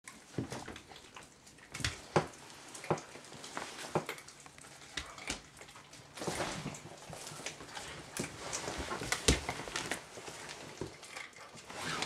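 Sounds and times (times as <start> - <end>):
puppy chewing bone: 0.1 - 6.2.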